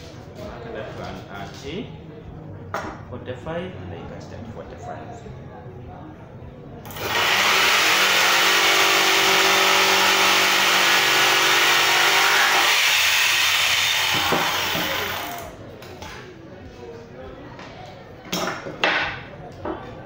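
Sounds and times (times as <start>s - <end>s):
electric jigsaw sawing wood: 6.9s - 15.4s.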